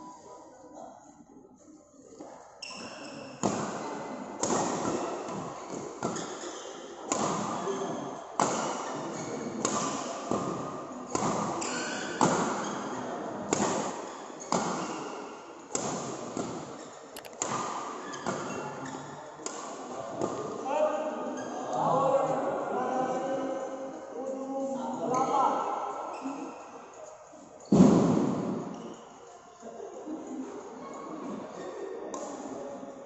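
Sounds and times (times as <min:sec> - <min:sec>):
rackets hitting shuttlecock: 0:04.4 - 0:06.4, 0:07.1 - 0:07.7, 0:09.6 - 0:12.8, 0:15.7 - 0:18.6.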